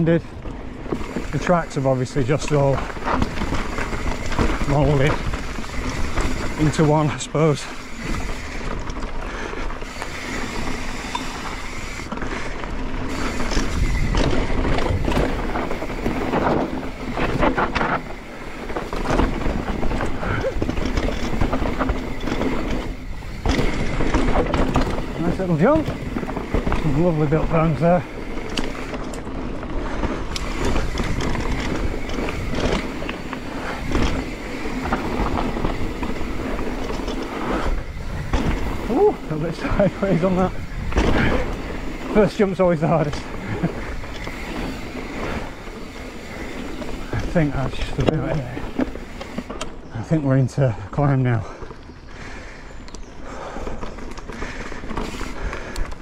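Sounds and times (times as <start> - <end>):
bike rattling over bumps: 0.0 - 56.0
bike tyres rolling over dirt: 0.0 - 56.0
wind rushing over microphone: 13.1 - 26.9, 28.0 - 42.1.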